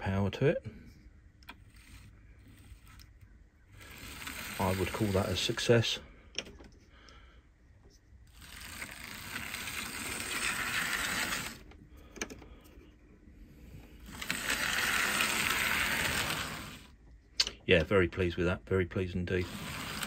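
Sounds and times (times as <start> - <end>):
electric motor whirring: 1.5 - 5.6, 8.3 - 11.7, 13.9 - 17.0, 19.4 - 20.0
wheels and rods rattling: 1.5 - 5.8, 8.3 - 12.4, 13.9 - 16.9, 19.3 - 20.0.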